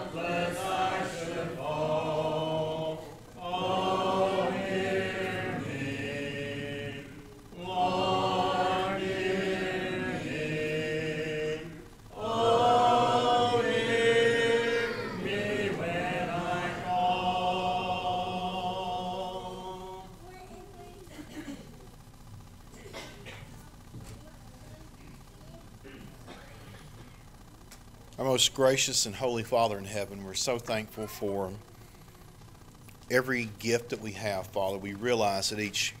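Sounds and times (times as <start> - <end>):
congregation singing a hymn: 0.0 - 20.2.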